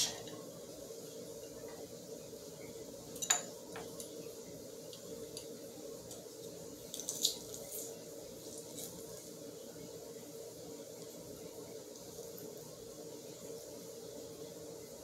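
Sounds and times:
quiet low hum: 0.0s - 15.0s.

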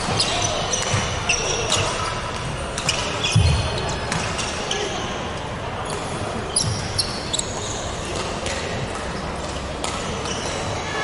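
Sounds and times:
sports hall din: 0.0s - 11.0s
shoes squeaking on wooden floor: 5.8s - 8.0s.

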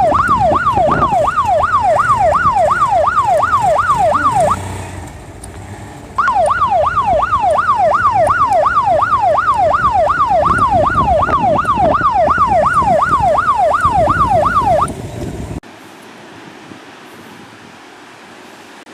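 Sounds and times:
police siren yelping: 0.0s - 4.7s, 6.2s - 14.9s
vehicle engine and road noise: 0.0s - 18.9s.

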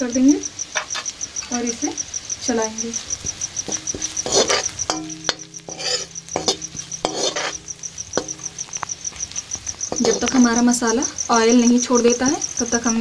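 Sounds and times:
cricket chirping: 0.0s - 13.0s
spices frying in oil: 0.0s - 13.0s
utensil scraping and knocking pan: 3.2s - 10.7s.

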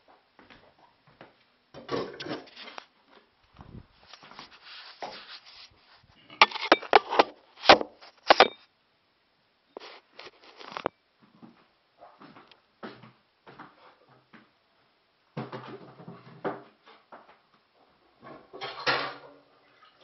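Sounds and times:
phone rubbing against cloth: 4.0s - 6.8s.

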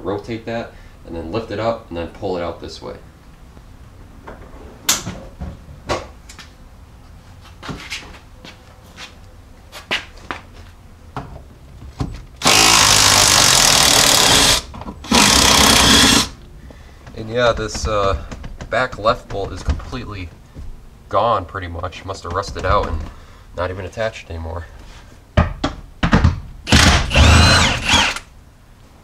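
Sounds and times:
impact wrench running: 12.4s - 16.4s, 26.7s - 28.3s
knocks and clunks: 17.0s - 20.8s, 22.1s - 23.3s, 25.4s - 27.3s.

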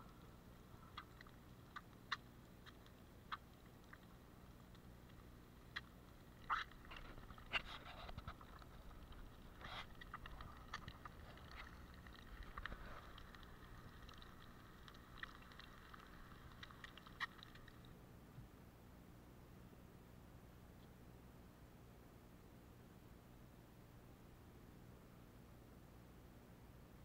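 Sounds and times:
egg frying with pops: 0.8s - 17.9s.

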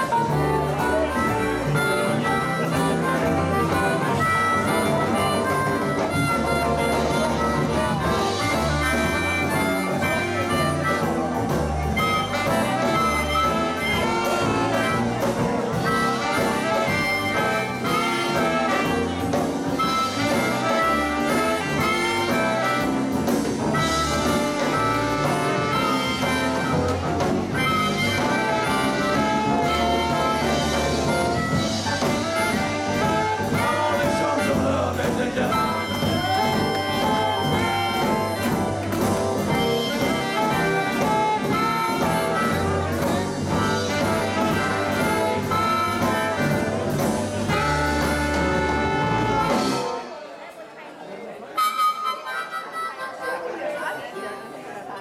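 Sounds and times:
drum beat: 0.0s - 50.0s
keyboard: 0.0s - 50.3s, 51.6s - 55.0s
saxophone: 0.0s - 50.3s.

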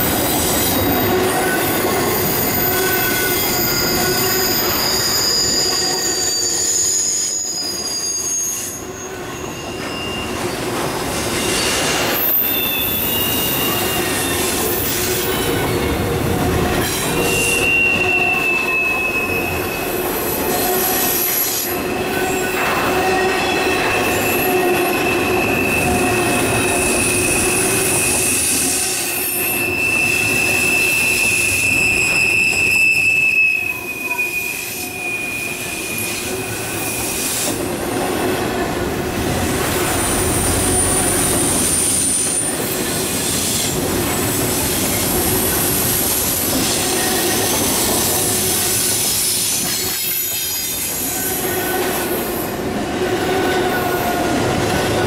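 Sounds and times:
train wheels rumbling and clacking: 0.0s - 55.0s
high-pitched wheel squeals: 0.4s - 10.6s, 11.3s - 15.7s, 16.7s - 37.5s.

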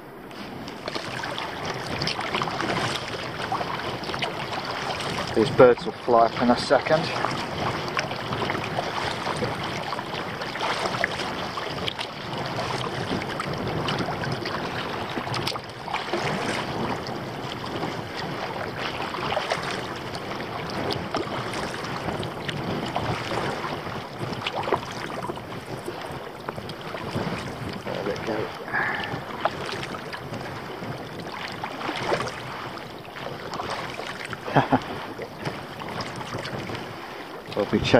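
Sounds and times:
water splashing around kayak: 0.0s - 37.9s
wind on microphone: 0.0s - 37.9s.

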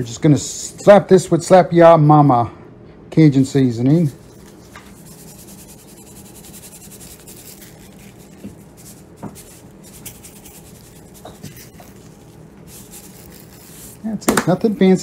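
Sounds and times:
seasoning shaken from shaker can: 4.0s - 14.8s.

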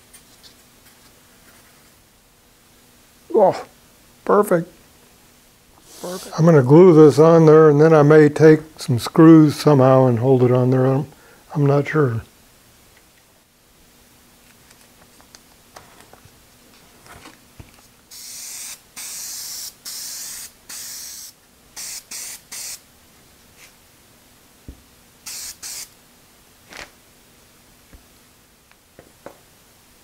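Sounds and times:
aerosol can spraying: 18.1s - 22.8s, 25.2s - 26.0s.

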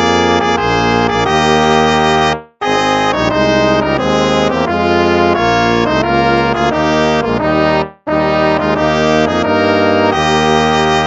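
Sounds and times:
slow brass hymn chords: 0.0s - 11.0s.

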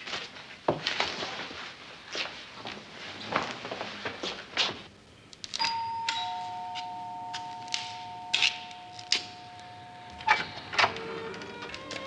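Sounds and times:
two-tone door chime: 5.6s - 12.0s.

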